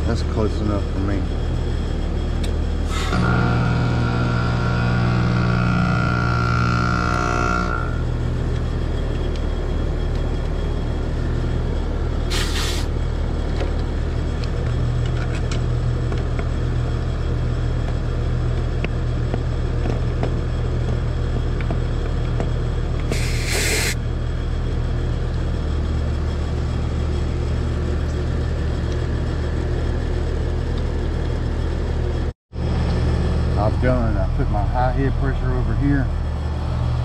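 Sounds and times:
pitched whine: 0.0s - 17.6s, 22.9s - 24.5s
heat pump humming: 0.0s - 37.0s
short hisses: 12.3s - 12.9s, 23.1s - 24.0s.

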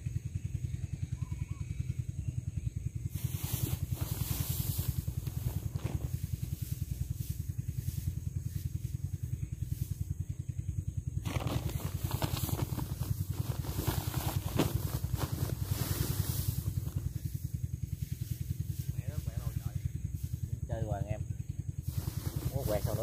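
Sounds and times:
small engine running: 0.0s - 23.0s
crackling hiss: 3.1s - 10.1s, 11.2s - 20.6s, 21.8s - 23.0s.

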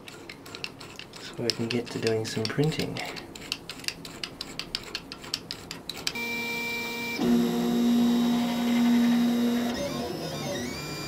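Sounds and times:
clamp screw clicking rapidly: 0.0s - 6.2s
printer stepper motors whining: 3.4s - 11.0s.

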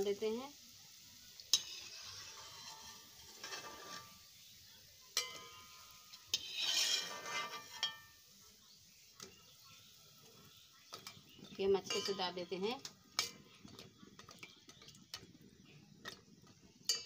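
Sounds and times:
metal skimmer scraping a pan: 1.5s - 4.3s, 5.2s - 8.1s, 11.0s - 15.2s, 16.0s - 17.0s.

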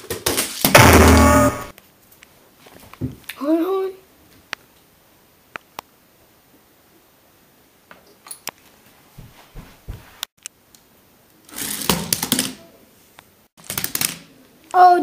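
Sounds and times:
low thumps: 0.7s - 1.7s.

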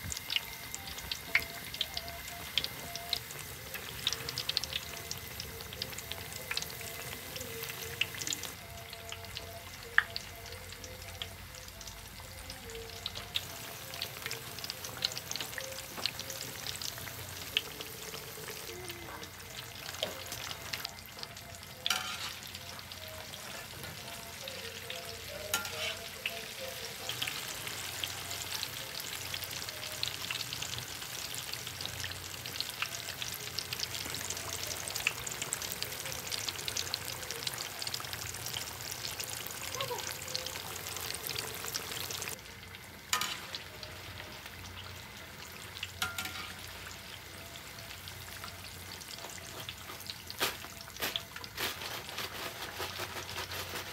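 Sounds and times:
oil sizzling with pops: 0.0s - 53.9s.

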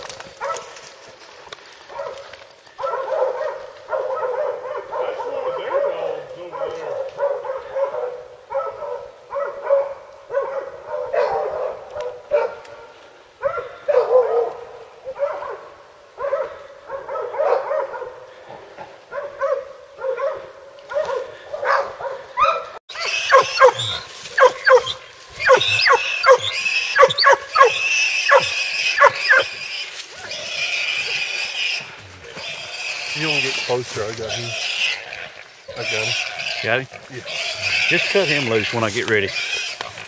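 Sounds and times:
hunting dogs baying: 0.3s - 0.9s, 1.8s - 40.0s
dogs barking rapidly: 0.4s - 0.8s, 1.9s - 12.8s, 13.4s - 18.4s, 19.1s - 29.7s.

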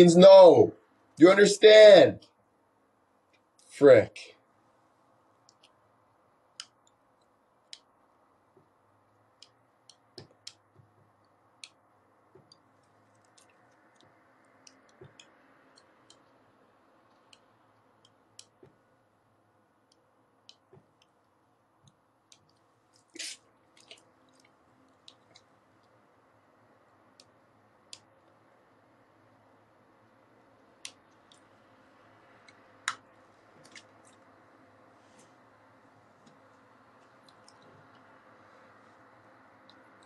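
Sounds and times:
faint clicks and taps: 5.4s - 5.8s, 6.5s - 7.9s, 8.5s - 16.4s, 17.0s - 18.8s, 19.8s - 26.0s.

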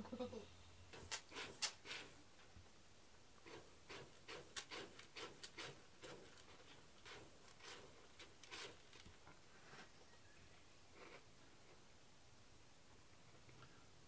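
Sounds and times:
cat scratching in litter: 0.9s - 2.2s, 3.4s - 9.1s.

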